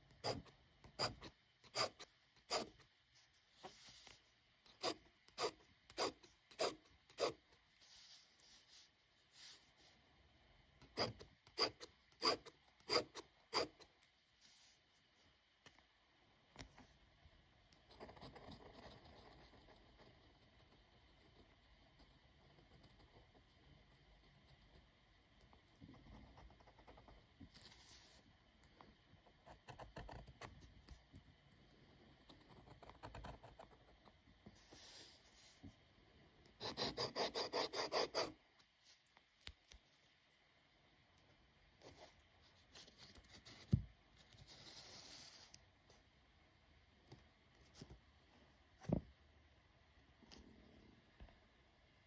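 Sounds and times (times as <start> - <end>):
pen nib scratching paper: 0.1 - 2.9, 3.7 - 9.7, 10.8 - 13.9, 17.8 - 23.4, 36.6 - 38.4
eraser rubbing on paper: 1.0 - 2.8, 4.8 - 9.8, 36.6 - 38.3.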